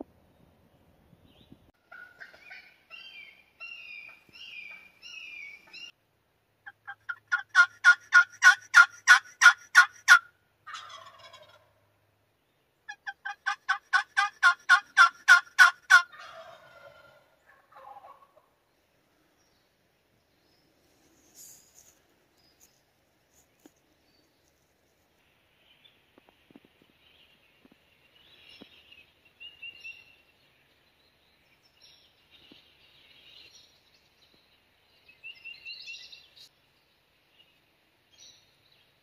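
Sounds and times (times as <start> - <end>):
turkey warbling: 1.9 - 3.1, 6.7 - 11.8, 12.9 - 18.5
turkey yelping: 1.9 - 4.1, 6.7 - 11.8, 12.9 - 18.5.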